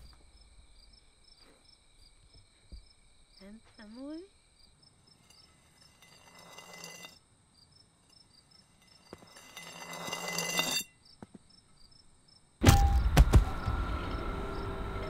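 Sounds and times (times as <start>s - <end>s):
crickets chirping: 0.0s - 15.0s
loud crashing hit: 12.6s - 14.2s.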